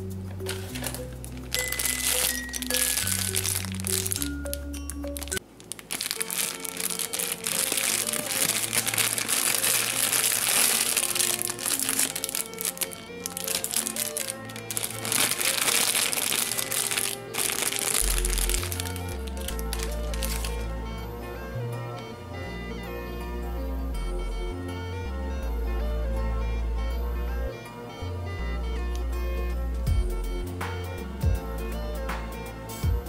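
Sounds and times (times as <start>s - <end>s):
background music: 0.0s - 33.0s
plastic bag crinkling: 0.4s - 20.6s.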